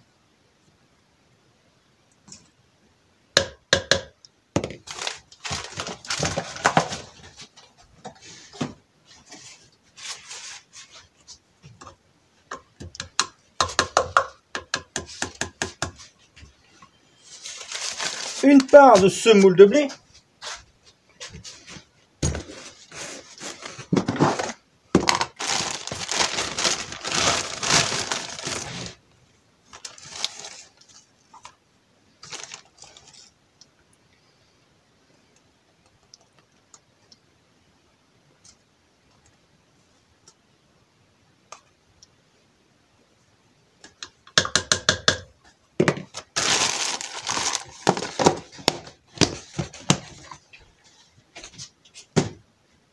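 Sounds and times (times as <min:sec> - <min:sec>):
plastic bag rustling: 0:04.6 - 0:11.3, 0:17.2 - 0:20.6, 0:21.2 - 0:29.0, 0:29.6 - 0:31.6, 0:32.2 - 0:33.4, 0:45.9 - 0:51.7
dry grain pouring into plastic bag: 0:25.2 - 0:29.0, 0:46.4 - 0:48.0.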